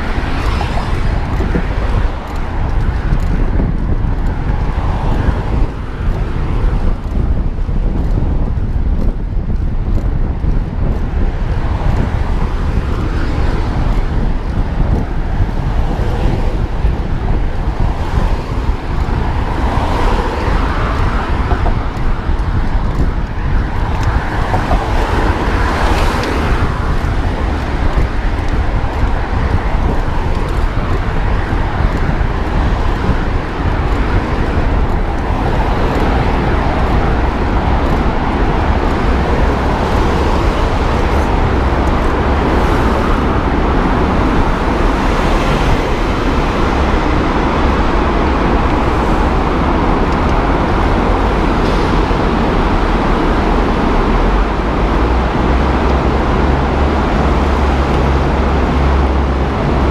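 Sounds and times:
road traffic: 0.0s - 59.9s
wind noise on microphone: 0.0s - 59.9s.

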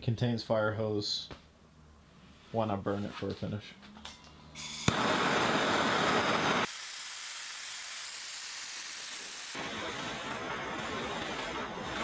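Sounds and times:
gas torch ignition click: 4.6s - 5.2s
gas torch flame rushing: 4.6s - 12.0s.

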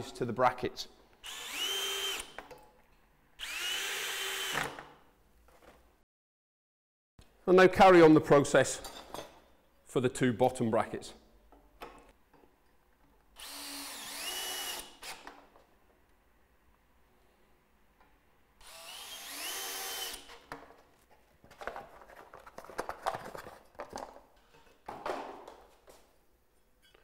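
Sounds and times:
cordless drill driving screw: 1.2s - 2.4s, 3.4s - 4.8s, 13.4s - 15.3s, 18.6s - 20.3s.

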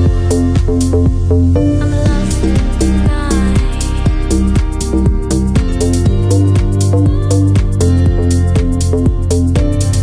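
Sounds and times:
electronic music with sliding bass: 0.0s - 10.0s.

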